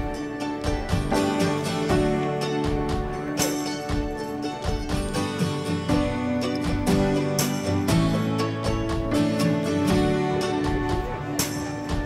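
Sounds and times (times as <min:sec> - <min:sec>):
guitar music: 0:00.0 - 0:12.0.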